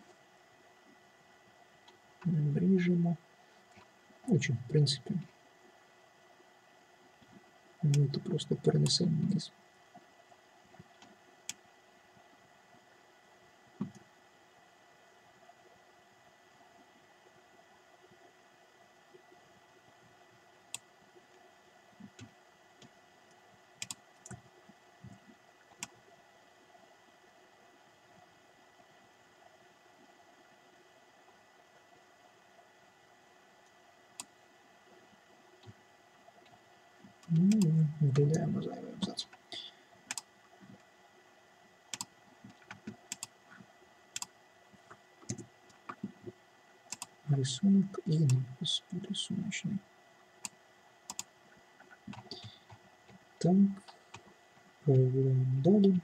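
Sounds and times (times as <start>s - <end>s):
low steady hiss: 0.0s - 56.0s.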